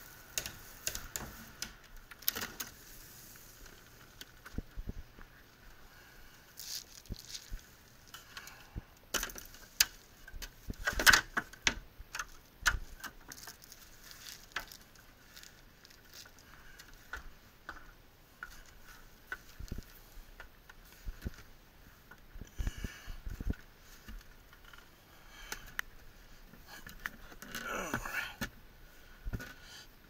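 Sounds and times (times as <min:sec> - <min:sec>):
knocks and clicks of climbing: 0:00.3 - 0:02.8, 0:08.1 - 0:13.7, 0:26.5 - 0:28.6.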